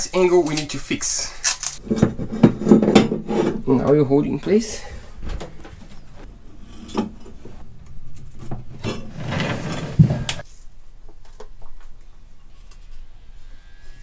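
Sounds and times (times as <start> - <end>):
metal rubbing and scraping: 1.6 - 3.9, 6.0 - 10.5
metal pipes clinking and knocking: 1.8 - 3.7, 5.4 - 10.4.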